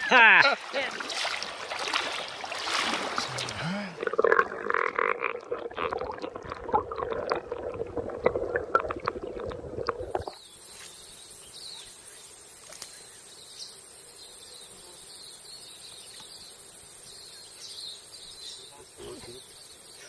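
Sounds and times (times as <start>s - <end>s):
insects droning: 0.0s - 20.0s
muffled underwater churning: 0.9s - 10.4s
faint chirps: 10.3s - 20.0s.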